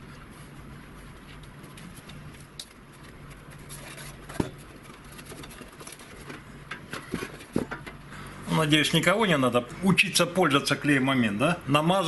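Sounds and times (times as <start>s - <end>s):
steady low hum: 0.0s - 12.0s
cardboard rustling: 1.7s - 6.4s.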